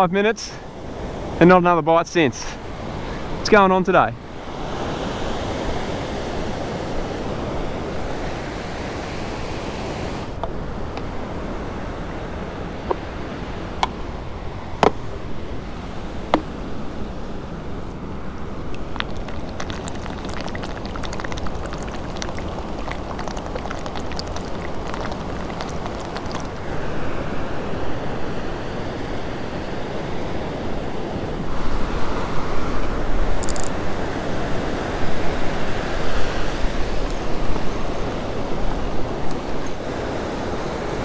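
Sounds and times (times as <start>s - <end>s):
ocean surf washing onto beach: 18.0s - 41.0s.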